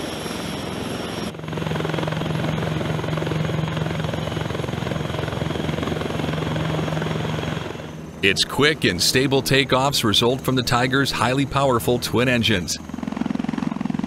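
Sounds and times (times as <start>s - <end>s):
helicopter rotor and turbine noise: 0.0s - 14.0s.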